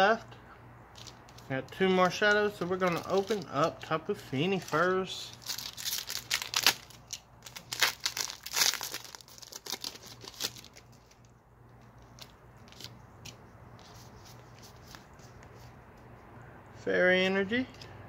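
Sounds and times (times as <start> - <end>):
foil wrapper tearing and crinkling: 2.1 - 11.3.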